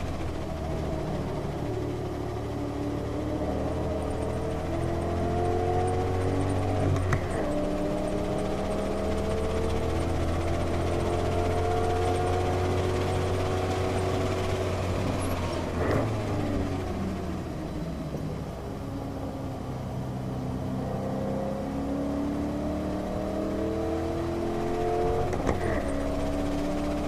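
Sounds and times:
car engine pulling under power: 0.0s - 27.0s
wind and tyre noise: 0.0s - 27.0s.

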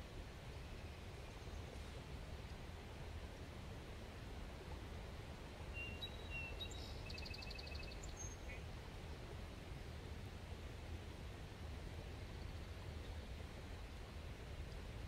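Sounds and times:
small bird singing: 5.8s - 8.6s.

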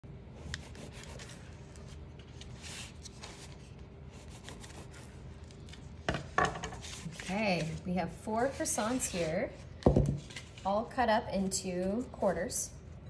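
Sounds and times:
knife cutting through croissant: 0.4s - 3.6s, 4.2s - 5.2s.

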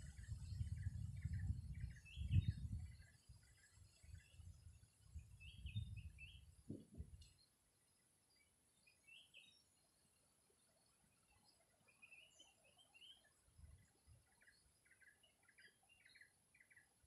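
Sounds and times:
wind buffeting microphone: 0.0s - 7.2s.

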